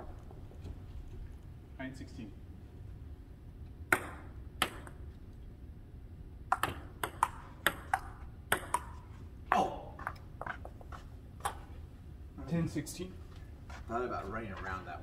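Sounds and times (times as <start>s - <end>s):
table tennis ball clicking: 6.5s - 9.0s.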